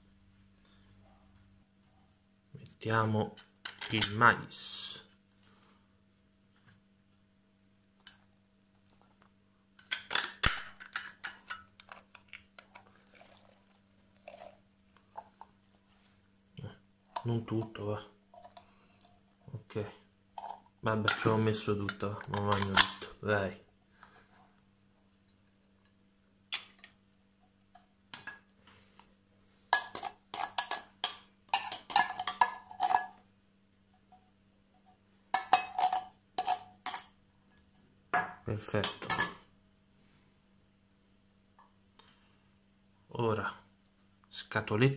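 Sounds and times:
fork clinking and scraping in tin can: 0:29.7 - 0:33.2, 0:35.3 - 0:37.1.

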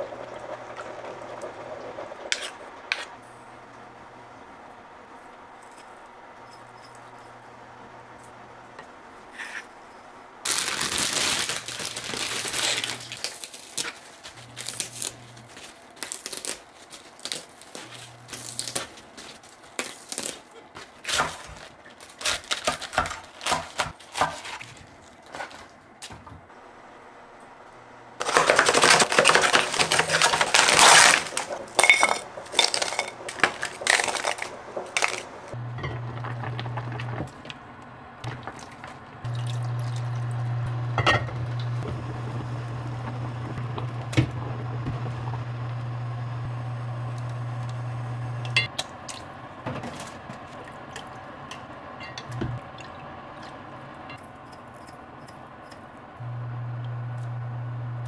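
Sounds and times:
crackling rustling: 0:10.4 - 0:25.9, 0:28.2 - 0:40.2
cabbage leaves snapping and tearing: 0:10.5 - 0:25.7, 0:28.2 - 0:31.8.

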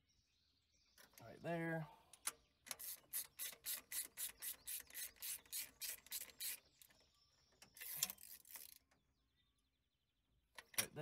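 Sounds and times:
socket ratchet rasping: 0:02.7 - 0:06.6, 0:07.7 - 0:08.8.

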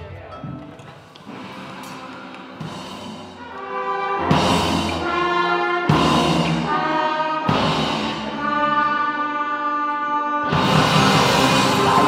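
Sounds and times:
brass playing loud chords: 0:03.3 - 0:12.0.

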